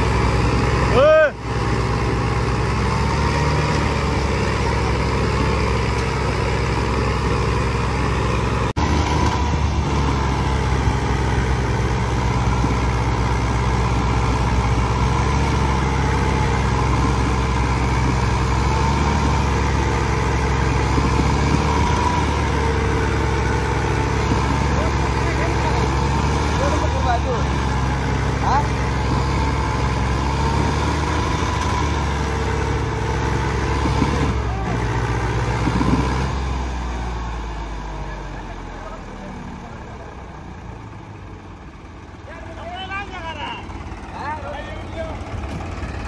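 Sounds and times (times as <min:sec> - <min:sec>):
tractor diesel engines under load: 0:00.0 - 0:46.0.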